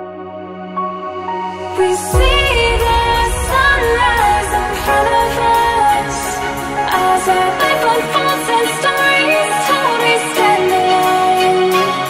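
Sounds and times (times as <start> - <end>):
electronic music with heavy bass: 2.0 - 9.3.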